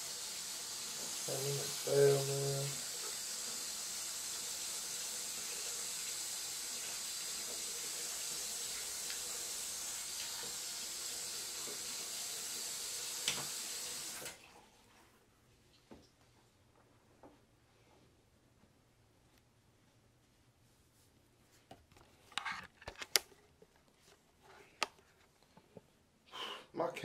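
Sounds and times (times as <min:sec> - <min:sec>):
tap water running into sink: 0:00.0 - 0:14.4.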